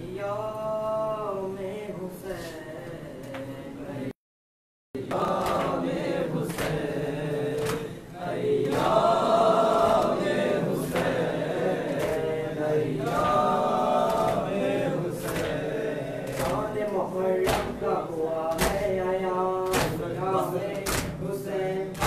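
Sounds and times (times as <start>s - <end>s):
men chanting together: 5.0s - 22.0s.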